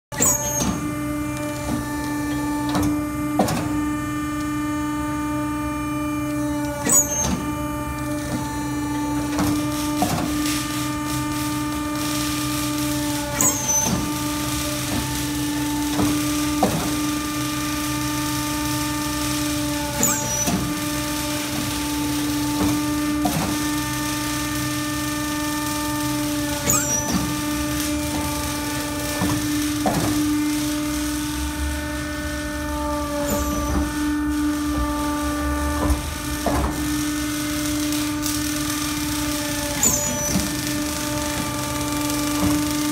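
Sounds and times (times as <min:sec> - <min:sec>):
press machine hum: 0:00.1 - 0:42.9
short high squeak: 0:00.2 - 0:00.9, 0:06.8 - 0:07.5, 0:13.4 - 0:14.1, 0:20.0 - 0:20.7, 0:26.6 - 0:27.4, 0:33.2 - 0:34.0, 0:39.8 - 0:40.5.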